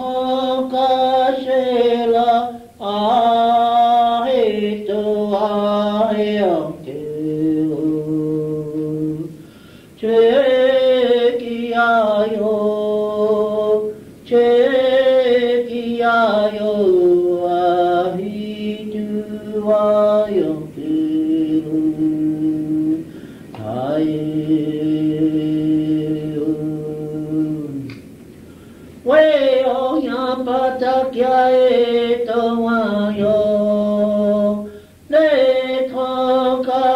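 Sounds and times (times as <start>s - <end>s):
man chanting: 0.0s - 9.4s, 10.0s - 27.9s, 29.0s - 36.9s.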